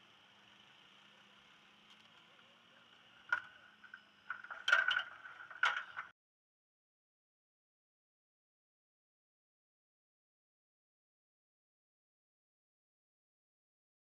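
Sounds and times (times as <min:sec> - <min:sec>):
faint hiss with low hum: 0:00.0 - 0:06.1.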